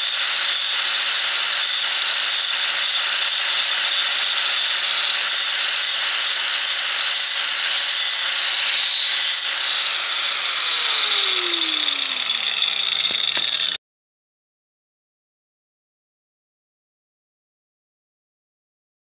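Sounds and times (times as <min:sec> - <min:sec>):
angle grinder cutting brick: 0:00.0 - 0:13.8.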